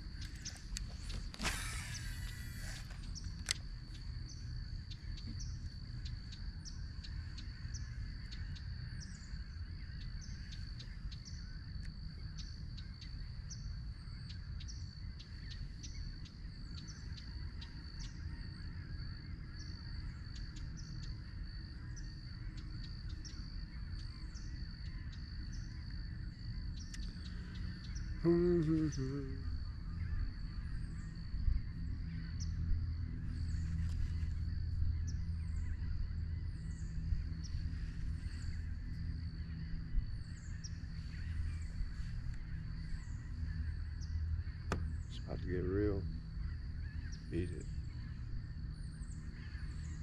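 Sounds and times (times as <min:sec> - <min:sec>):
steady low rumble: 0:00.0 - 0:01.4, 0:02.2 - 0:50.0
thin high-pitched whine: 0:00.0 - 0:11.5
faint high ticks and chirps: 0:00.0 - 0:50.0.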